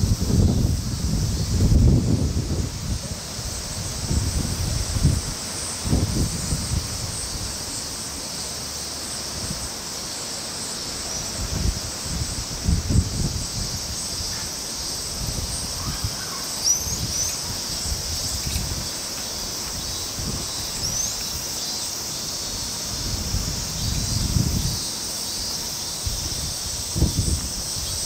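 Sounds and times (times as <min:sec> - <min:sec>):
wind rumbling on microphone: 0:00.0 - 0:07.7, 0:11.2 - 0:21.4, 0:22.5 - 0:24.9, 0:26.0 - 0:28.0
high-pitched insect drone: 0:00.0 - 0:28.0.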